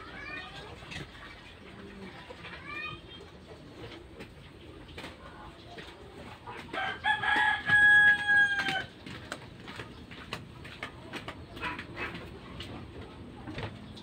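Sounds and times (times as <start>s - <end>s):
rooster crowing: 6.8s - 8.9s.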